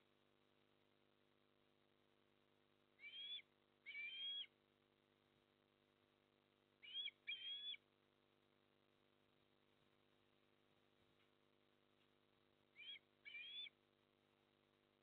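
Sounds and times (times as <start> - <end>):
osprey whistled chirps: 3.0 - 4.5, 6.8 - 7.8, 12.8 - 13.7.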